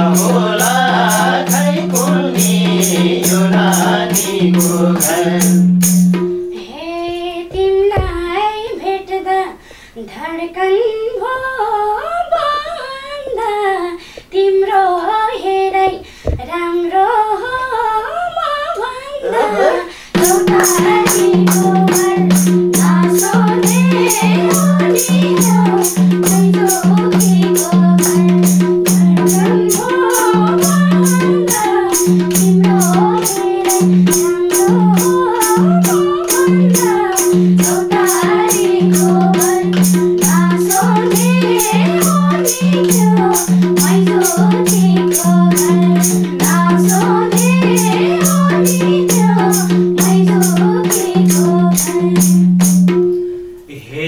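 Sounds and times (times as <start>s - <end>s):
person singing: 0.0s - 5.7s, 14.4s - 52.3s
hand drum beat: 0.0s - 8.4s, 20.2s - 53.2s.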